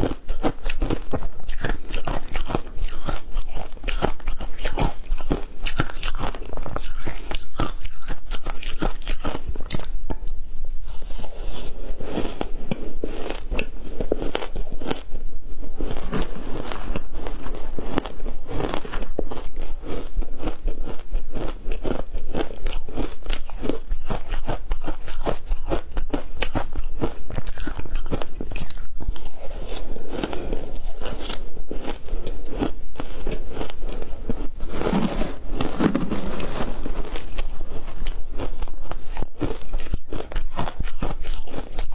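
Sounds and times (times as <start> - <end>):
crushed ice crunching: 34.6 - 37.4.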